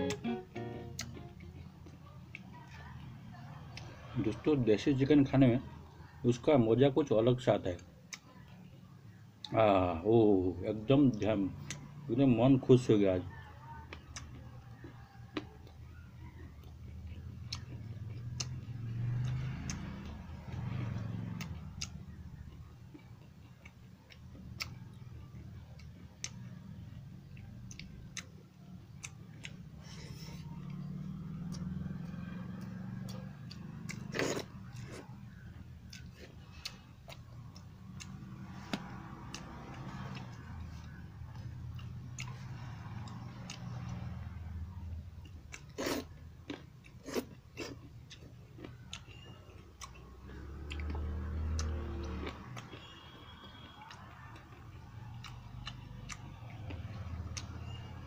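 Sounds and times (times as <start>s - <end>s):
man eating with hand: 0.0s - 2.5s, 16.4s - 44.4s, 45.2s - 57.8s.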